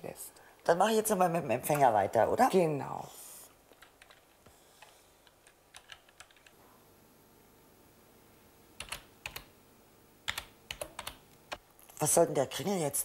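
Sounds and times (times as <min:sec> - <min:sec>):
keyboard keystrokes: 0:05.2 - 0:06.5, 0:08.8 - 0:09.5, 0:10.3 - 0:11.2.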